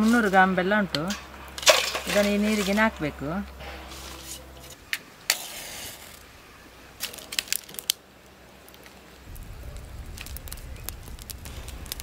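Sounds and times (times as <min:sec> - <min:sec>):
dry leaves burning with crackling: 0:00.0 - 0:12.0
match striking and flaring: 0:03.9 - 0:06.3, 0:07.0 - 0:08.0, 0:08.7 - 0:12.0.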